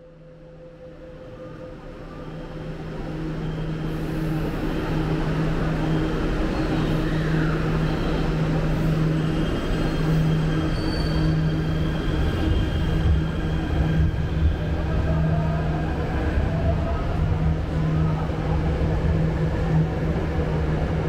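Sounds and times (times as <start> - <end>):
metro train humming: 0.0 - 21.0.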